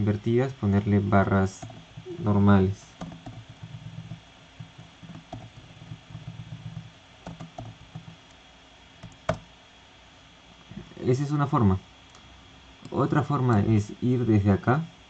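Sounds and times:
keyboard key clicks: 0:03.0 - 0:08.2.

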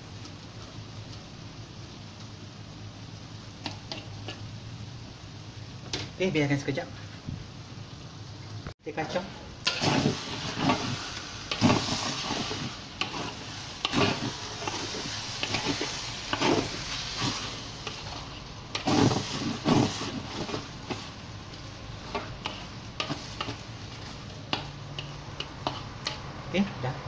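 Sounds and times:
noodles sizzling in a wok: 0:00.0 - 0:08.2, 0:09.4 - 0:26.8
spatula scraping a pan: 0:09.8 - 0:21.2, 0:22.0 - 0:26.3.

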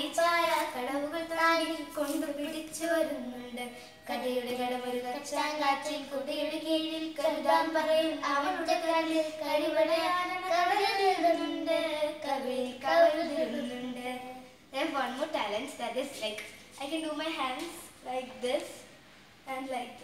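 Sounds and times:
girl singing unaccompanied: 0:00.0 - 0:14.7.

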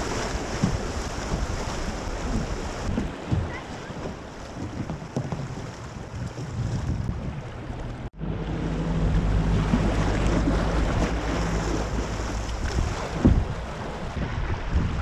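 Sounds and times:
river water splashing and rushing: 0:00.0 - 0:15.0
wind buffeting microphone: 0:00.0 - 0:15.0
thump: 0:13.2 - 0:13.6.

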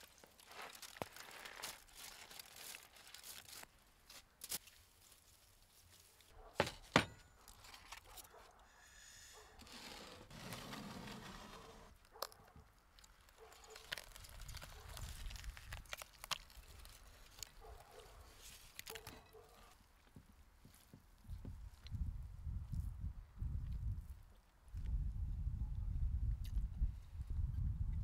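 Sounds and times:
foil crinkling and tearing: 0:00.0 - 0:03.7, 0:13.0 - 0:17.6.

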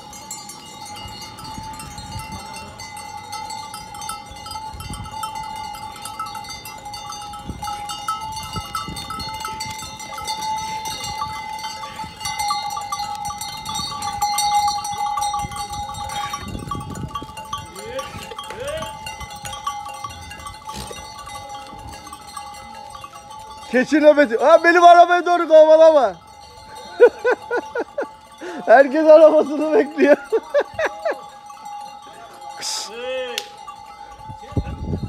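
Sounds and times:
goat bells jangling: 0:00.0 - 0:35.0
hooves on paving stones: 0:18.0 - 0:23.6.

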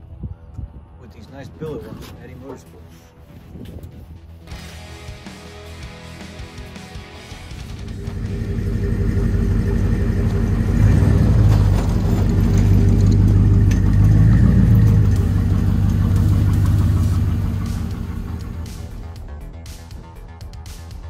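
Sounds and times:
vehicle engine idling: 0:07.3 - 0:19.2.

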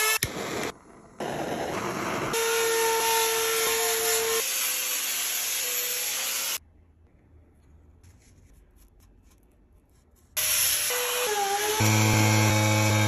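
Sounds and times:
electric grinder sanding wood: 0:10.4 - 0:13.0.

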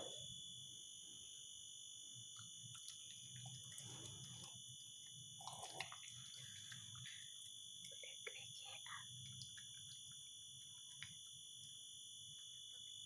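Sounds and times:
steady high-pitched whine: 0:00.0 - 0:13.0
dog chewing and licking: 0:02.7 - 0:04.8.

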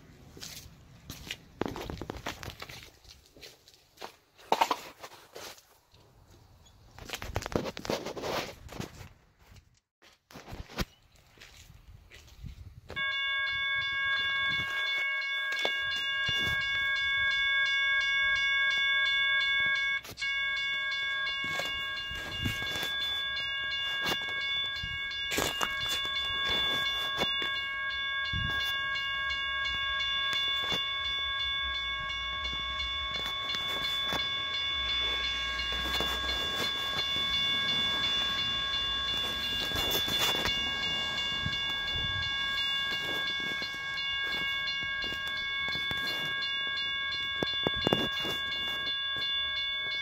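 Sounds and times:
railroad crossing bell ringing: 0:12.9 - 0:50.0.

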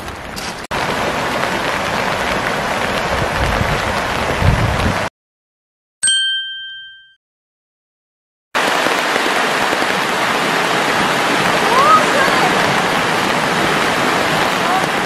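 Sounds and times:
rain: 0:00.0 - 0:05.1, 0:08.6 - 0:15.0
rushing stream water: 0:00.0 - 0:05.1, 0:08.6 - 0:15.0
bright chime ringing: 0:06.0 - 0:07.2.

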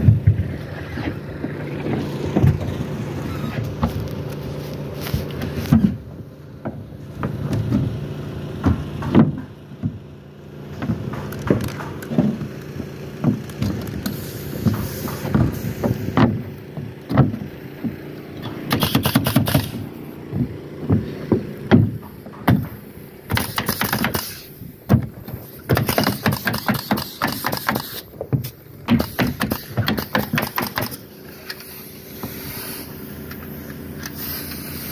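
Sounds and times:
boots stepping on wooden subfloor: 0:00.0 - 0:08.0, 0:10.7 - 0:18.6, 0:19.7 - 0:22.9
rapid clicking and rattling: 0:18.4 - 0:19.9, 0:21.7 - 0:31.7.

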